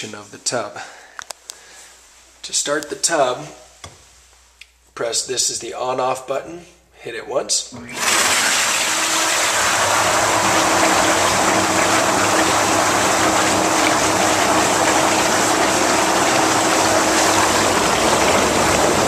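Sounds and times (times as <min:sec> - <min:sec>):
motor hum: 0:07.8 - 0:19.0
whirlpool jets churning water: 0:07.9 - 0:19.0.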